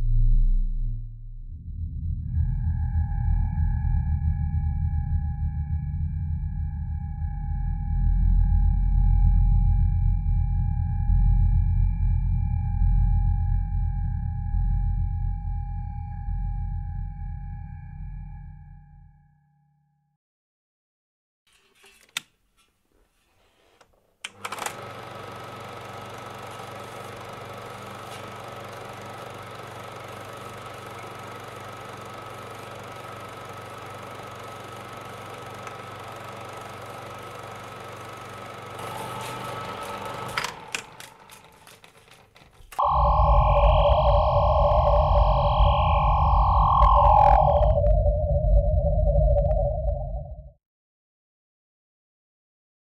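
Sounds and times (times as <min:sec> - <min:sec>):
deep rumble: 0:00.0 - 0:10.2, 0:42.8 - 0:50.6
wavering electronic drone: 0:00.0 - 0:18.7, 0:38.7 - 0:41.8, 0:42.8 - 0:50.5
steady electronic hum: 0:25.5 - 0:41.9, 0:42.8 - 0:50.5
held high tone: 0:42.8 - 0:50.4.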